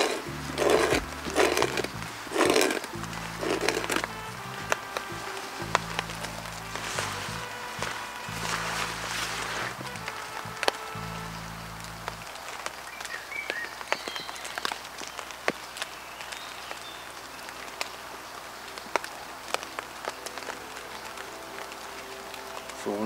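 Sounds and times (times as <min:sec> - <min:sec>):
steady rain hiss: 0:00.0 - 0:23.0.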